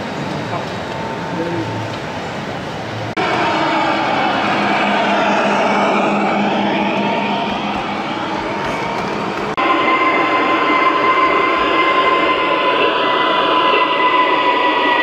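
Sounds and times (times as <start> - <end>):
model locomotive whine: 0.0 - 15.0.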